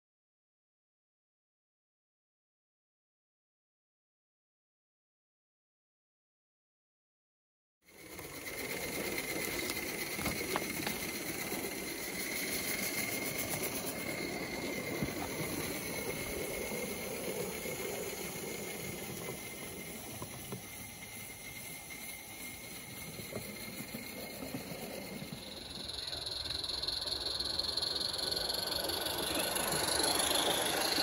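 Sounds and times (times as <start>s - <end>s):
steam hiss: 7.9s - 31.0s.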